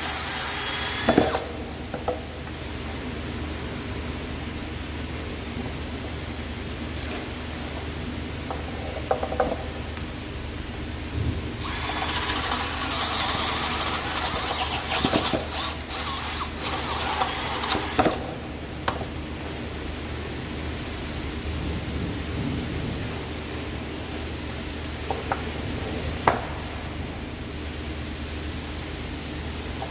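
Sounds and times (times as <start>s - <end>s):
drill boring into wood: 0.0s - 1.4s, 11.6s - 18.2s.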